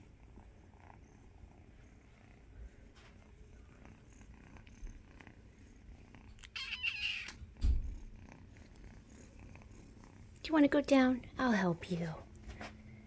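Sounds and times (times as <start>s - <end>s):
kitten purring: 0.0s - 12.3s
kitten meowing: 6.4s - 7.4s
low thump: 7.6s - 8.1s.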